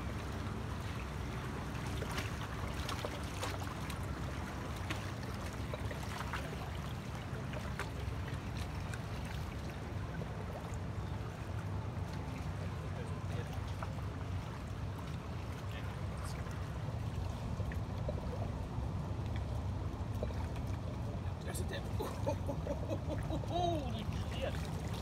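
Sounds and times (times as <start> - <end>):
small splashes: 0.0 - 25.0
water sloshing and dripping: 0.0 - 25.0.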